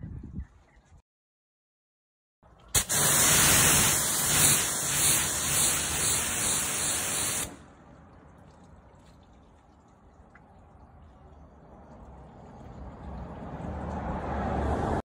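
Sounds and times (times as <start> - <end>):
water spray hissing on glass: 2.8 - 7.6.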